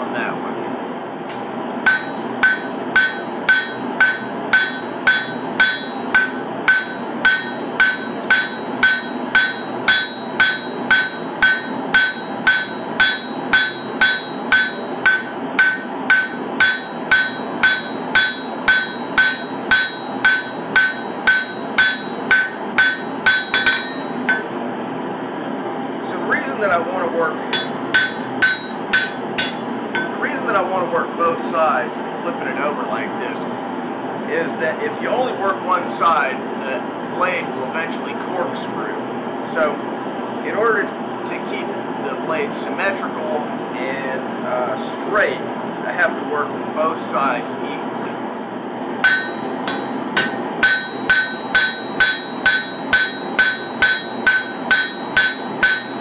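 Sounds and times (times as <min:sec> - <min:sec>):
hammer striking blade on anvil: 0:01.9 - 0:24.6, 0:27.5 - 0:30.2, 0:49.0 - 0:56.0.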